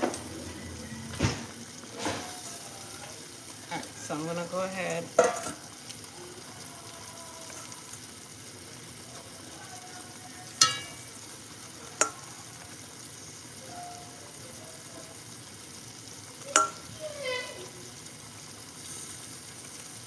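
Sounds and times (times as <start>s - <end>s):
sauce simmering in pot: 0.0s - 20.0s
metal ladle clinking pot: 5.2s - 5.6s, 10.6s - 11.1s, 16.5s - 16.8s.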